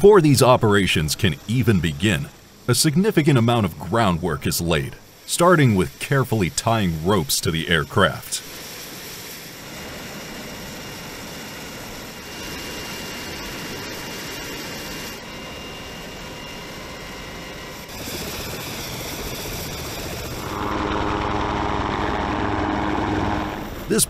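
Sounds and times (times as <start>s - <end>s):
helicopter turbine whine: 0.0s - 24.0s.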